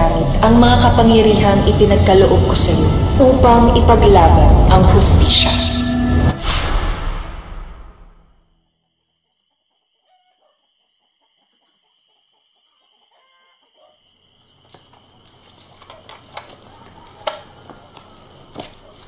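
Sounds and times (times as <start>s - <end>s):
high-pitched drone: 0.0s - 7.5s
faint bird calls: 9.5s - 19.0s
footsteps on leaves and twigs: 14.5s - 19.0s.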